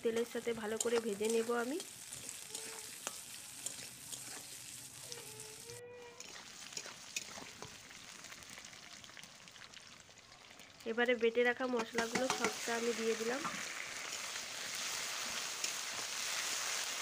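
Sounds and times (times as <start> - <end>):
potatoes sizzling in hot oil: 0.0 - 17.0
metal spatula scraping pan: 0.7 - 7.7, 12.0 - 12.6.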